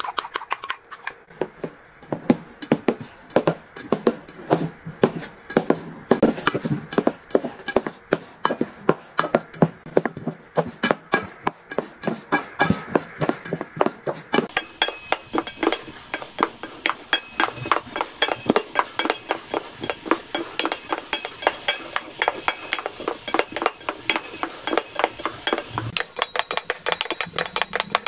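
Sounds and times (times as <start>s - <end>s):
utensil clinking on ceramic bowl: 14.4s - 28.0s.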